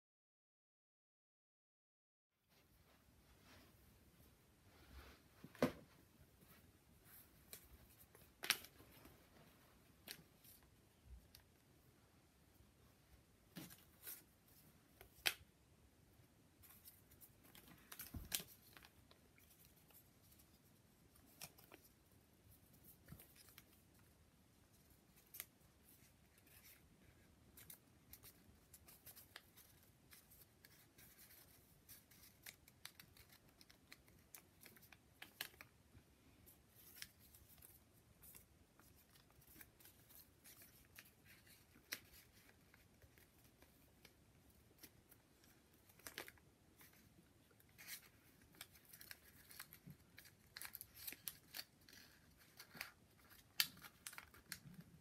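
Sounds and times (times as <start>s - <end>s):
paper crinkles and snaps: 7.5s - 9.1s, 16.6s - 20.5s, 21.1s - 21.9s, 25.1s - 26.9s, 27.5s - 35.8s, 36.7s - 55.0s.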